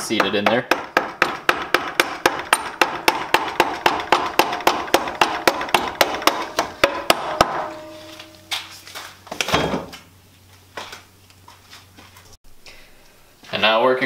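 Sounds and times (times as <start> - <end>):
rubber mallet tapping metal: 0.0 - 8.4.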